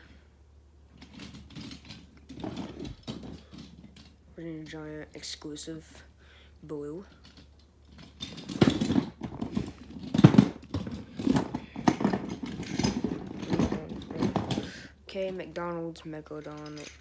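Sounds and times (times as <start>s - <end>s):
toy trucks clattering in a drawer: 1.0s - 4.8s, 7.0s - 15.6s, 16.2s - 17.0s.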